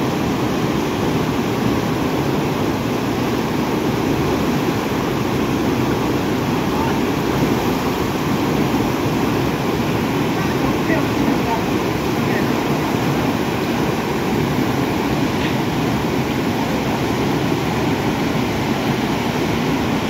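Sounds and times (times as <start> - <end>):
river rapids rushing: 0.0 - 20.0.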